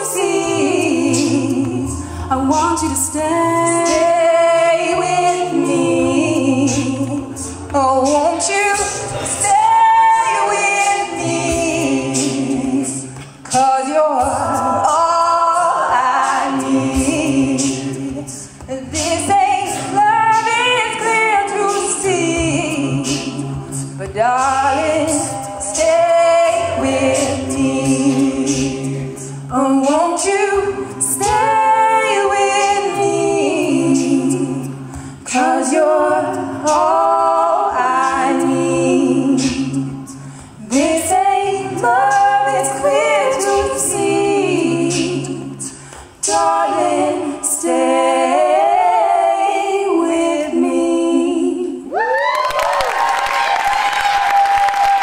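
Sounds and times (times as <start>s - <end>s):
female voices singing in harmony: 0.0s - 55.0s.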